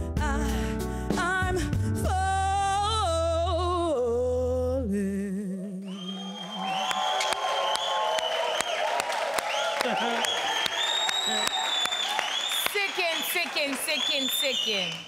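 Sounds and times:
woman singing with vibrato: 0.0 - 6.2
audience applauding and cheering: 5.9 - 15.0.

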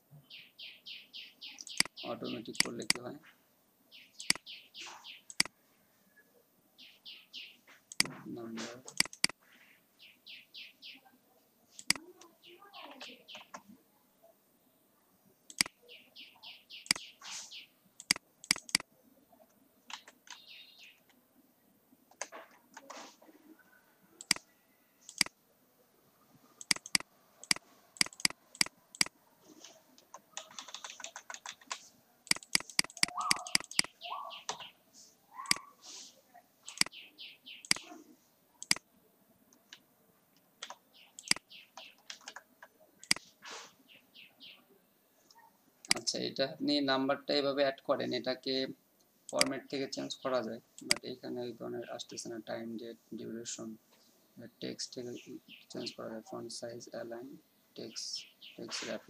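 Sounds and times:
high chirps: 0.3 - 3.1, 3.9 - 5.5, 15.5 - 18.8, 26.6 - 29.1, 32.3 - 36.0, 36.6 - 38.0, 40.9 - 42.0
mouse clicks: 1.6 - 3.0, 4.2 - 4.5, 5.3 - 5.5, 7.9 - 8.2, 8.8 - 9.4, 11.8 - 12.0, 15.5 - 15.8, 16.8 - 17.1, 18.0 - 18.9, 24.2 - 25.4, 26.6 - 34.7, 35.4 - 35.7, 36.7 - 37.0, 37.6 - 37.9, 38.6 - 38.9, 40.6 - 43.3, 45.3 - 46.0, 50.8 - 51.1
computer keyboard typing: 2.5 - 3.0, 7.9 - 8.1, 8.9 - 9.4, 11.8 - 12.0, 15.5 - 15.7, 18.0 - 18.9, 24.2 - 24.4, 25.1 - 25.3, 26.6 - 29.1, 30.1 - 34.0, 36.7 - 36.9, 40.6 - 41.4.

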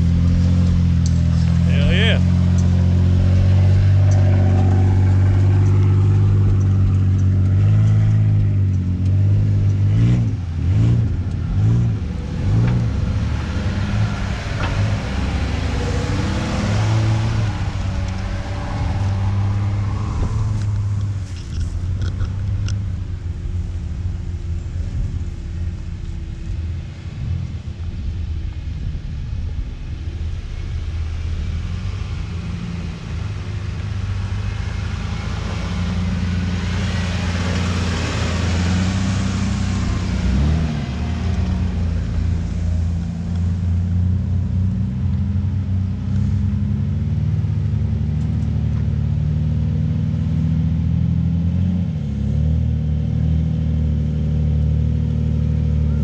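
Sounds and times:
engine running at low revs: 0.0 - 56.0
broad rushing noise: 10.9 - 43.9.

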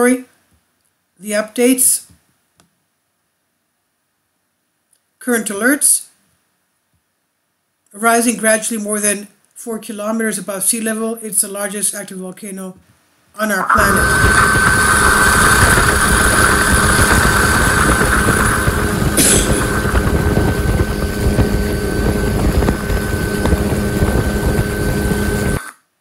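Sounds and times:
turbine whine: 13.6 - 25.7
helicopter rotor and wind buffeting: 13.7 - 25.6.

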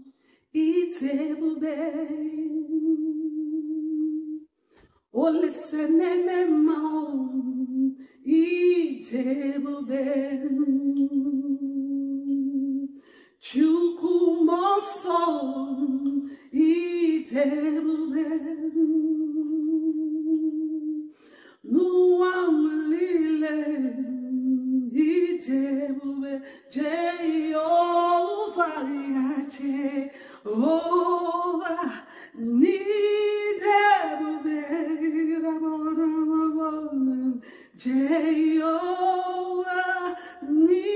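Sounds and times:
woman singing unaccompanied: 0.0 - 4.5, 5.1 - 40.9.

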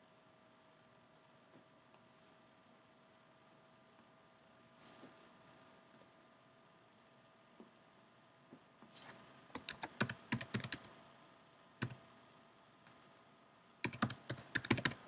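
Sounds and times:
typing on computer keyboard: 9.5 - 10.9, 11.8 - 12.0, 13.8 - 15.0.

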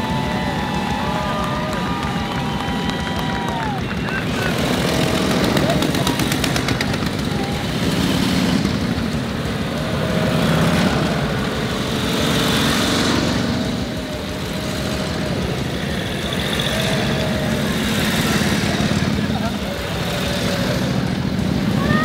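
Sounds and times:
motorcycles passing at low speed: 0.0 - 22.0.

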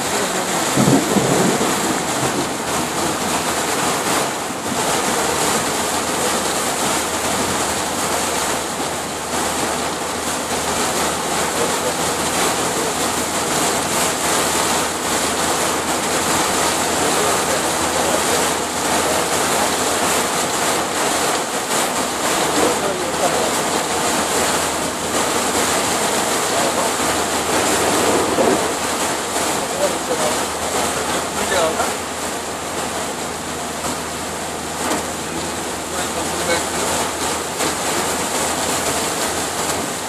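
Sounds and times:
heavy rain on vehicle roof: 0.0 - 40.0.

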